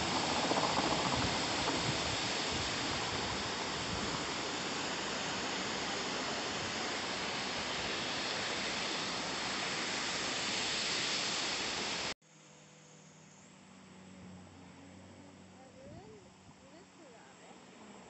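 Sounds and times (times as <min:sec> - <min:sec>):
small waterfall rushing: 0:00.0 - 0:12.2.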